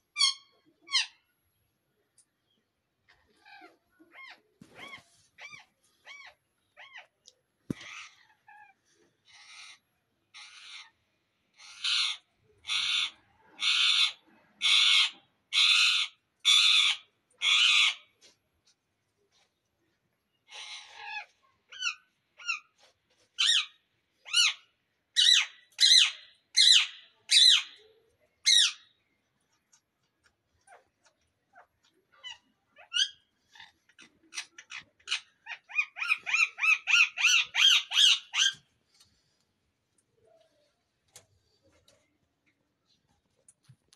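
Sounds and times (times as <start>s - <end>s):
parakeet screeching: 11.6s - 18.0s, 32.2s - 38.7s.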